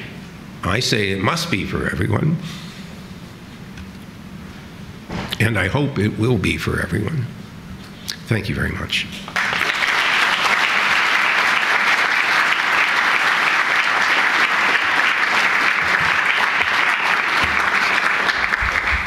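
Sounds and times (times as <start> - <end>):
audience applauding: 9.3 - 19.0.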